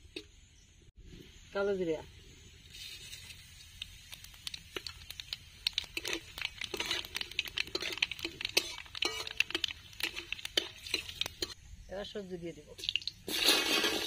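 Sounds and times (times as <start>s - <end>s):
spices popping in hot oil: 2.5s - 11.9s, 12.7s - 14.0s
metal spatula scraping a pan: 5.9s - 11.6s.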